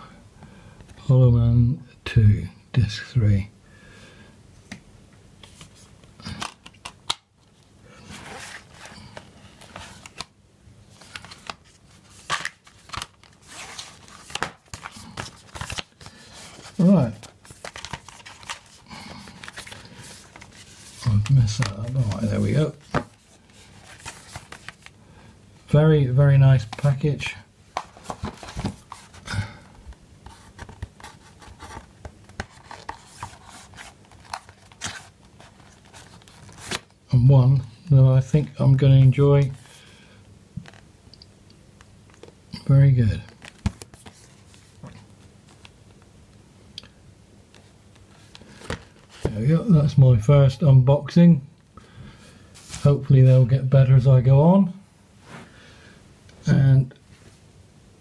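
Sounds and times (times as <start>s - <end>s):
cardboard rustling and sliding: 8.0s - 10.2s, 10.9s - 24.9s, 27.7s - 29.3s, 30.2s - 36.9s, 52.6s - 53.0s.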